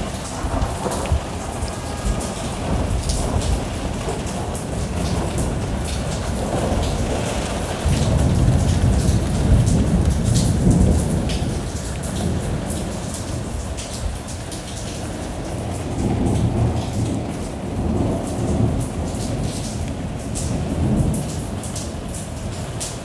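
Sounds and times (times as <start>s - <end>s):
low thunder rumble: 0.0s - 22.9s
rain pattering on window: 0.0s - 23.0s.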